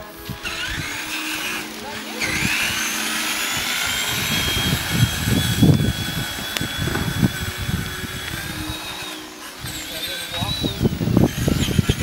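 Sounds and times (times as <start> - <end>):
electric motor whine: 0.0 - 12.0
low uneven rumbling: 0.0 - 12.0.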